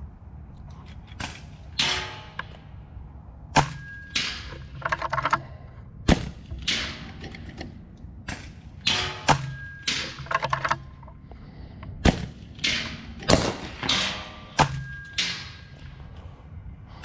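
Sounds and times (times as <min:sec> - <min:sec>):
air rifle shots: 0:03.5 - 0:04.8, 0:06.0 - 0:10.6, 0:12.0 - 0:16.1.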